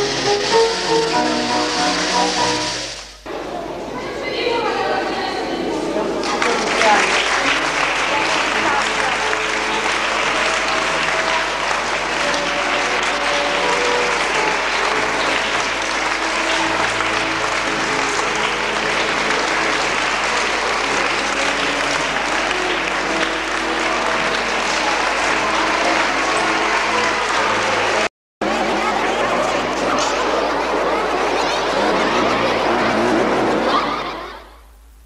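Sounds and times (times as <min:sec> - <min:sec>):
music playing: 0:00.0 - 0:03.3, 0:06.6 - 0:28.1
crowd applause: 0:00.0 - 0:03.4, 0:05.9 - 0:34.4.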